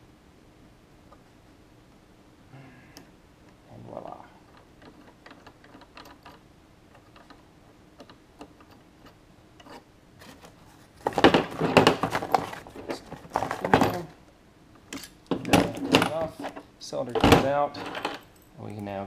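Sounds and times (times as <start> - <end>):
metal parts rattling: 4.4 - 7.4, 9.6 - 14.2, 14.9 - 18.9.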